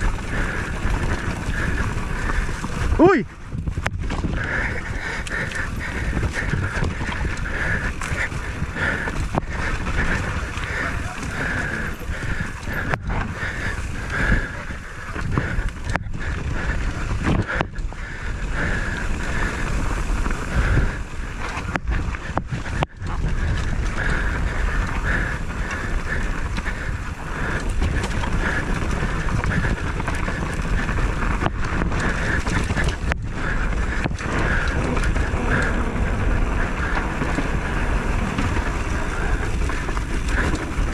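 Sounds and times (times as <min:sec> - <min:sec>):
wind rumbling on microphone: 0:00.0 - 0:40.9.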